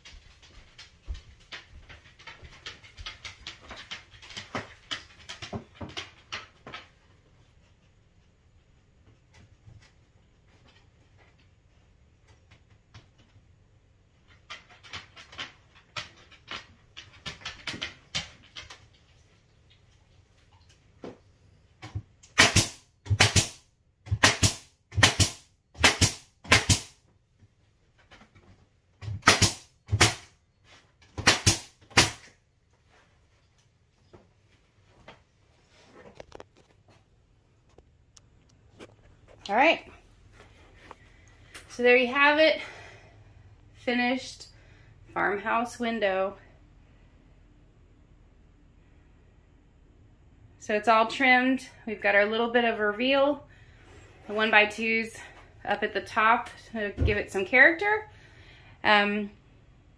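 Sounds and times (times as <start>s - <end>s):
nail gun shots: 22.3s - 27.0s, 29.2s - 30.3s, 31.2s - 32.2s.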